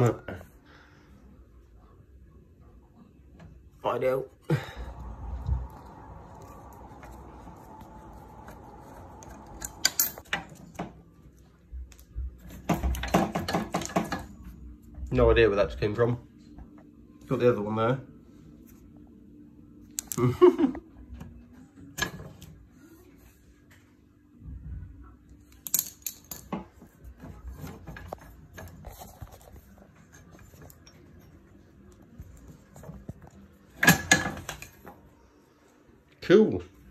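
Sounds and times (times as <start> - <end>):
metal parts clicking and rattling: 9.5 - 10.6, 25.5 - 26.7.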